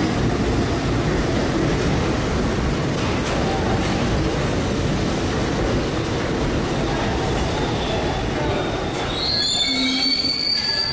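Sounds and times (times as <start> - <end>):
subway train rumbling: 0.0 - 10.9
high brake squeal: 8.7 - 10.9.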